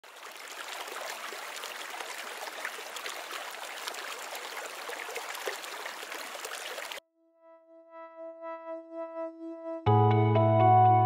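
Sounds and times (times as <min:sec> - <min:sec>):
running water: 0:00.0 - 0:07.0.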